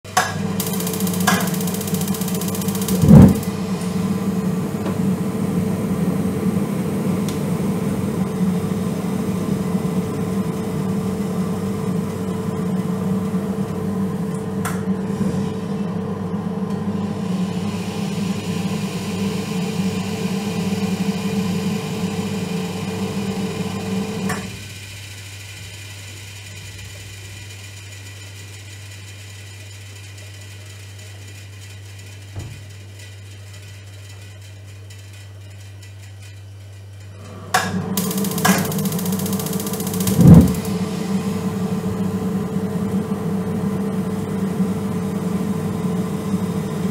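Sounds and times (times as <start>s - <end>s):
water heater humming: 0.0s - 28.2s, 37.0s - 46.9s
loud knock: 40.1s - 40.7s.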